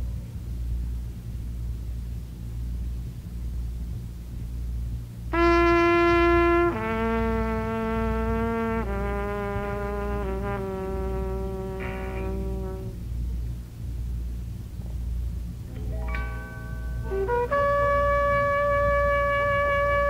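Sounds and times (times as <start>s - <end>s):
low steady hum: 0.0s - 20.0s
trumpet playing long notes: 5.3s - 13.0s, 17.0s - 20.0s.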